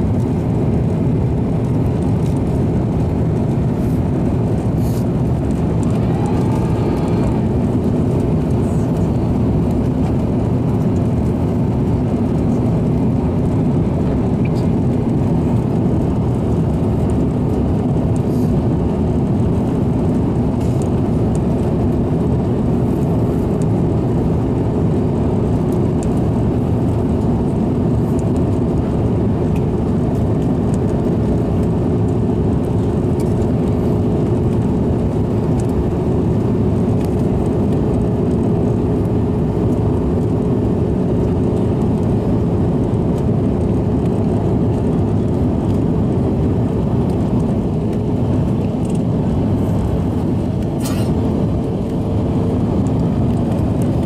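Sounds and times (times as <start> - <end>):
steady hum: 0.0 - 19.2
jet engine and airflow roar: 0.0 - 54.0.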